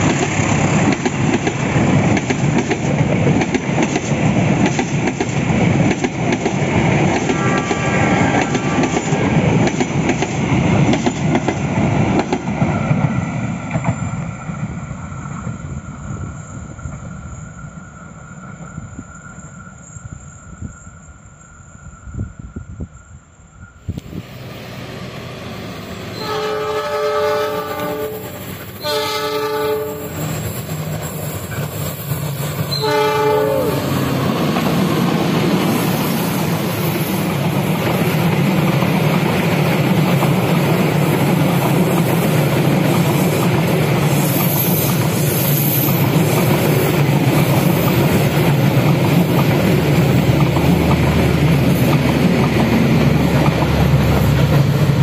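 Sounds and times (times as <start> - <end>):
train wheels clattering on rails: 0.0 - 17.8, 25.8 - 55.0
locomotive horn blasts: 7.3 - 9.2, 26.1 - 30.2, 32.7 - 34.0
locomotive engine running: 46.2 - 55.0.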